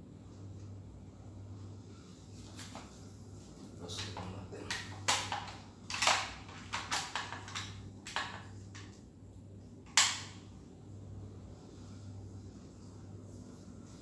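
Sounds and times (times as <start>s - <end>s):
faint low hum: 0.0s - 14.0s
objects clacking and rustling: 3.9s - 8.9s.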